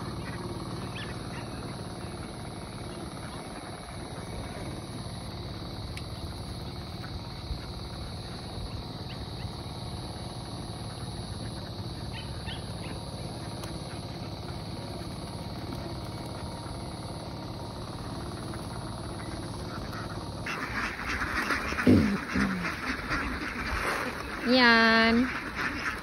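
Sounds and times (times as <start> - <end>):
flock of ducks quacking: 0.0 - 26.0
higher duck calls: 18.2 - 26.0.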